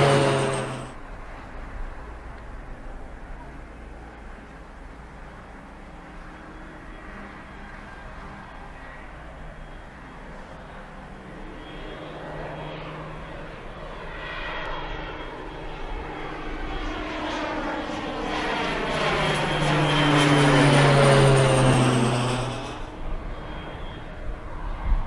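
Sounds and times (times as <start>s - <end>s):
high turbine whine: 0.0s - 3.0s, 14.6s - 25.0s
propeller plane passing overhead: 0.0s - 25.0s.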